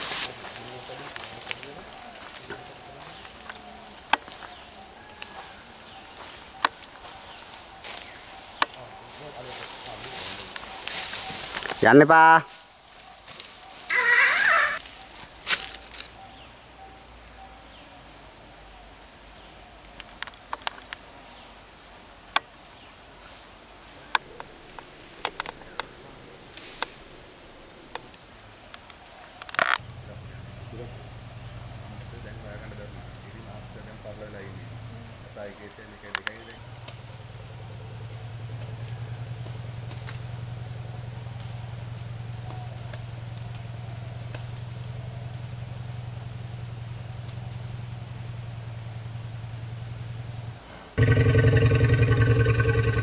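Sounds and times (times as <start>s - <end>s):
forest background hiss: 0.0s - 53.0s
engine idling: 29.8s - 35.1s, 36.6s - 53.0s.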